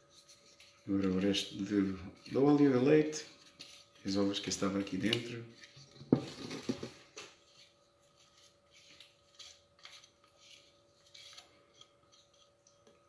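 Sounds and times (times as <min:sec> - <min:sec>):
spatula scraping a jug: 0:07.4 - 0:12.7.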